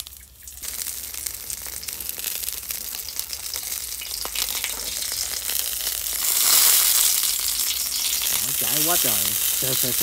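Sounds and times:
meat sizzling and crackling on grill: 0.0s - 10.0s.

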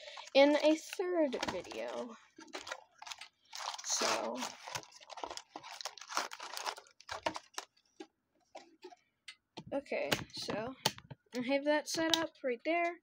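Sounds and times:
foil wrappers crinkling: 0.0s - 8.8s.

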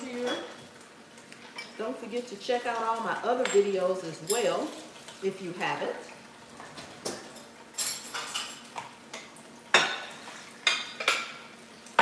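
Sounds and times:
dishes clanking in sink: 6.6s - 12.0s.

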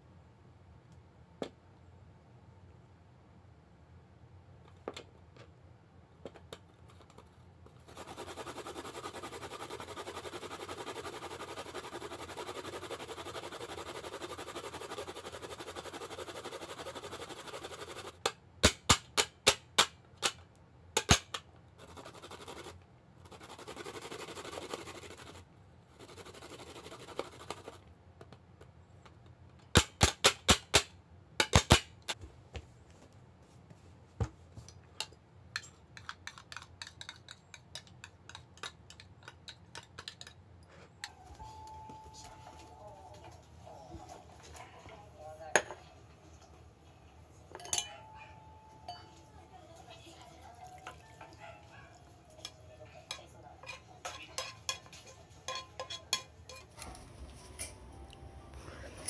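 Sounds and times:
grating on plastic grater: 7.8s - 18.2s, 21.8s - 27.8s.

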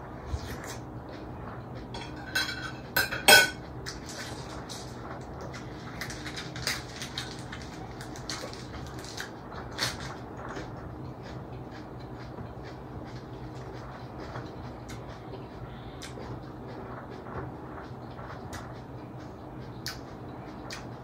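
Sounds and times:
metal spoon clinking on plate: 2.0s - 3.6s
food chewing: 3.8s - 18.7s.

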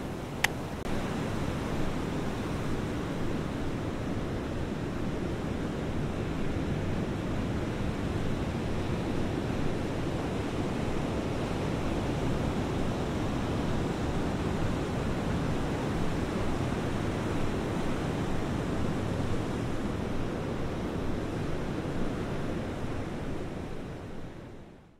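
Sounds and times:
ocean surf: 0.0s - 24.6s.

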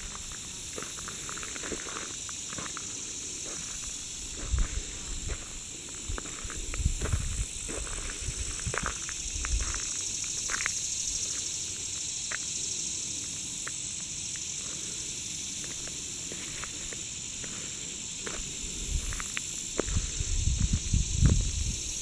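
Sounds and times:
insects buzzing: 0.0s - 22.0s.

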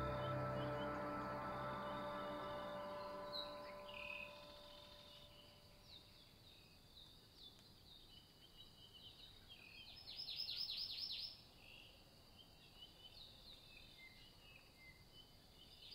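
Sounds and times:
faint birdsong chirps: 0.0s - 15.9s.

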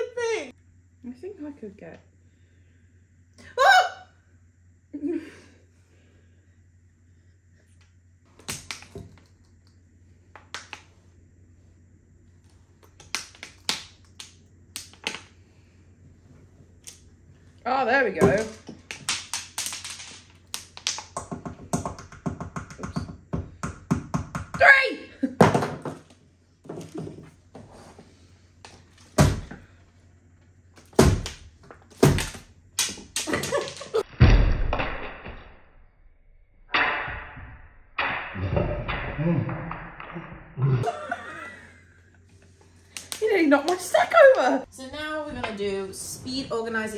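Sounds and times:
sweets toppling onto wooden table: 31.6s - 34.0s.

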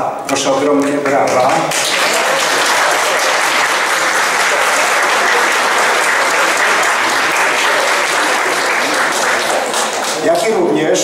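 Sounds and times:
crowd clapping: 0.8s - 11.0s.

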